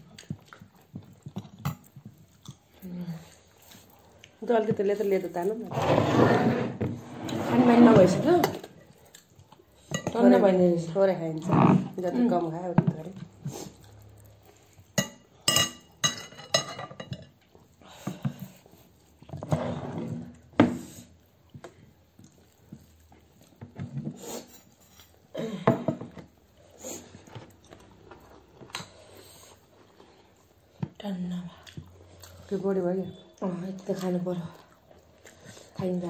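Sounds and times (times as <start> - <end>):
chewing and mouth noises: 0.0 - 5.0, 13.2 - 15.5, 26.5 - 36.0
metal spoon clinking on glass dishes: 15.0 - 17.3.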